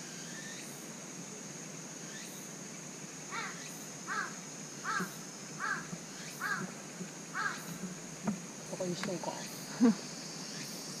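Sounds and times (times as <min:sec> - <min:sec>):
crow cawing: 0:03.3 - 0:07.8.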